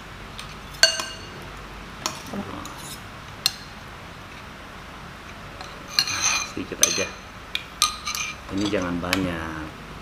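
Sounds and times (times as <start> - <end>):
metal spoons clinking on bowls: 0.4 - 1.4, 5.6 - 9.4.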